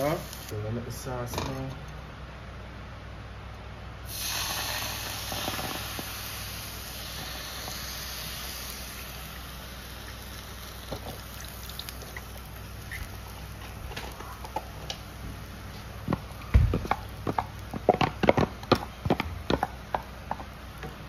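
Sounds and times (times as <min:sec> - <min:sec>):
cream sizzling in a skillet: 0:04.1 - 0:17.8
pops in a pan: 0:07.0 - 0:14.8.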